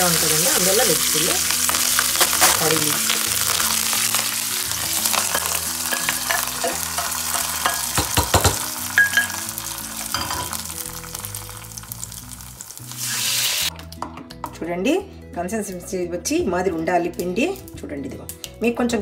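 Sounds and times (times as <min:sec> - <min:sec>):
hot oil sizzling and crackling: 0:00.0 - 0:13.7
spoon clinking glass bowl: 0:05.2 - 0:09.5, 0:10.1 - 0:10.6.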